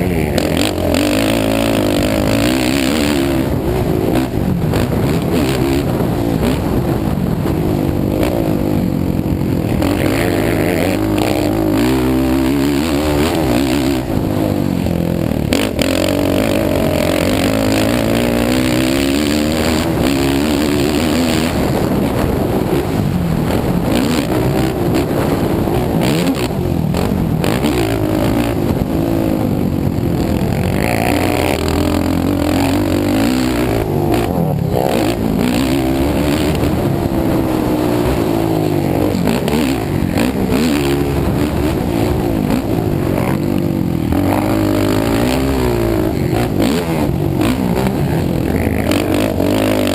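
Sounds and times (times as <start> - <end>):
atv engine revving: 0.0 - 49.9.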